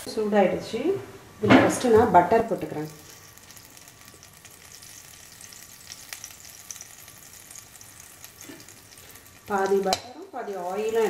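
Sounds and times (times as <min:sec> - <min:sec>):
butter sizzling in a pan: 0:01.7 - 0:11.0.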